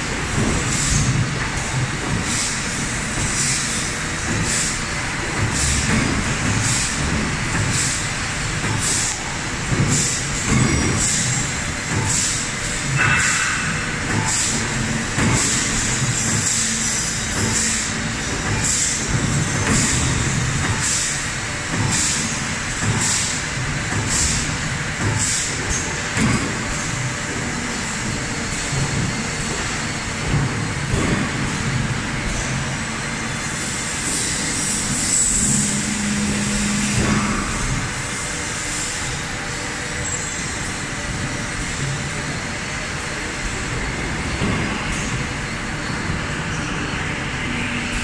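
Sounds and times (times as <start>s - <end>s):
low machine rumble: 34.8s - 38.5s.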